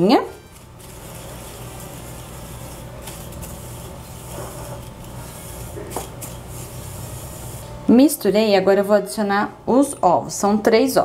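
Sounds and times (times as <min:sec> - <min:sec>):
whisk scraping sugar in glass bowl: 0:00.5 - 0:07.7.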